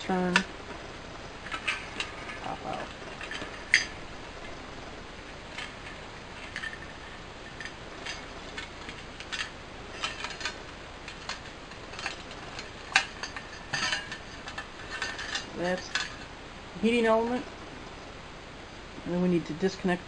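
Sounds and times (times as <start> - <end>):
clicks and rattles of metal parts: 1.4 - 4.0, 5.5 - 16.3.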